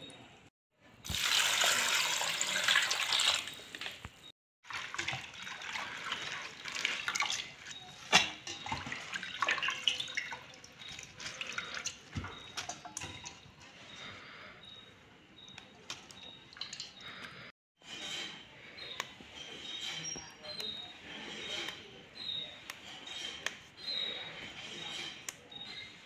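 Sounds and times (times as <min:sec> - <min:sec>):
leaves splashing in metal bowl: 0:01.1 - 0:03.6, 0:04.7 - 0:13.4
tap water running into metal bowl: 0:01.1 - 0:03.6, 0:04.7 - 0:13.4.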